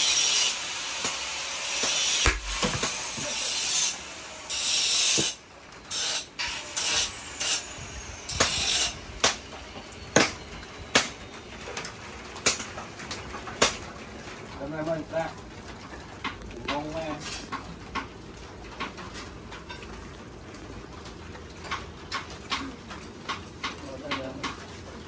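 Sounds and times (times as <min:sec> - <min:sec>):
machete scraping wood: 0:00.0 - 0:07.7, 0:08.3 - 0:09.4
sharp knocks: 0:01.8 - 0:03.3.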